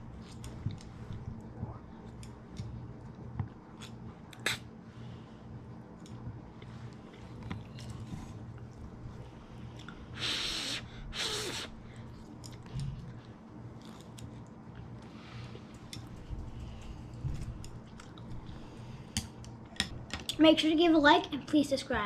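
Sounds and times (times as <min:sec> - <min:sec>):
person slurping noodles: 0:10.2 - 0:11.7
chewing: 0:12.3 - 0:18.5.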